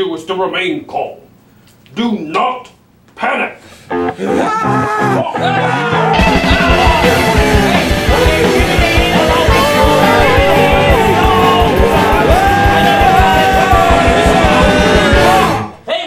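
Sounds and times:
rock song with singing: 4.0 - 15.8
fast drum beat: 6.2 - 15.7.

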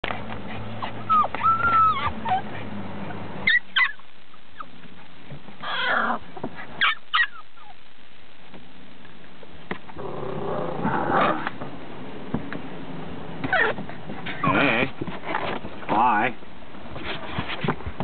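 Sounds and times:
puppies yipping: 0.1 - 4.9, 5.6 - 7.8
puppies whining: 0.2 - 4.9, 5.6 - 7.8, 13.4 - 14.6.

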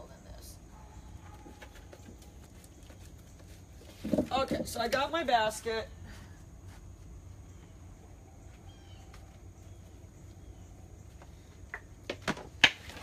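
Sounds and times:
faint bird chirps: 7.4 - 11.5.

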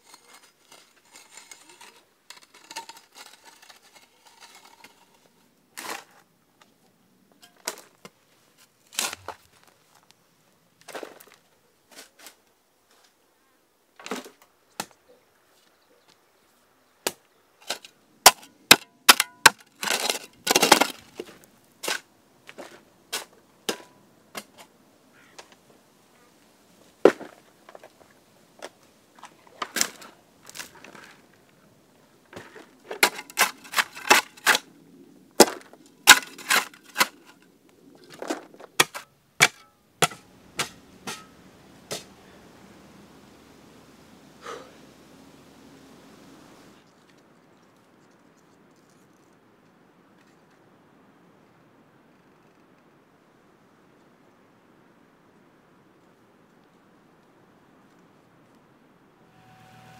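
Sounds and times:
spade and pickaxe striking soil: 17.1 - 22.1, 23.1 - 24.6, 32.4 - 34.7, 35.4 - 37.3, 38.7 - 42.1
long scraping rush: 59.2 - 59.9.

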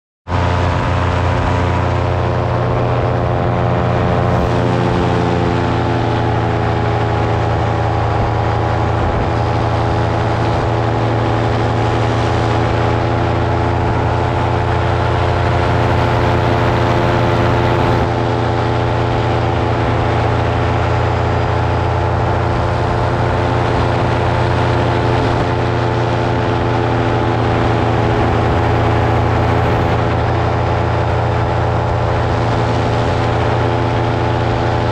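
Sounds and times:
drone propellers humming: 0.3 - 34.9.

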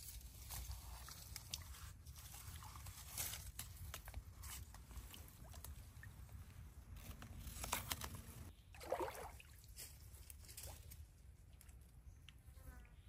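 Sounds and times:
water sloshing and trickling: 0.0 - 11.9
water splash: 8.8 - 9.7.

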